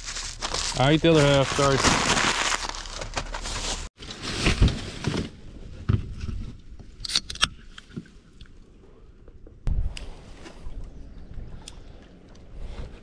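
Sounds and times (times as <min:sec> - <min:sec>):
rustling: 0:00.0 - 0:06.6.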